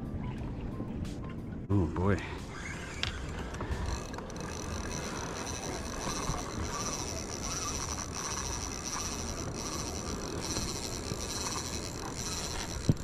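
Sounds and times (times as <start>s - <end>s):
wind and water rumble: 0.0s - 13.0s.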